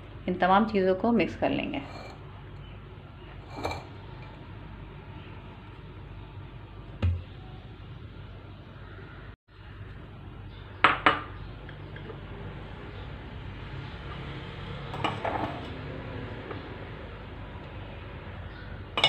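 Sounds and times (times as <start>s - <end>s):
bowls clinking: 3.5s - 3.9s, 15.0s - 15.7s.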